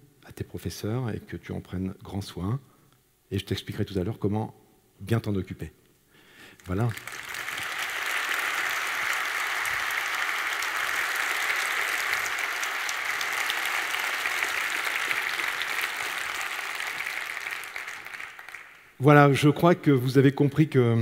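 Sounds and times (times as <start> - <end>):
audience applauding: 6.6 - 19.0.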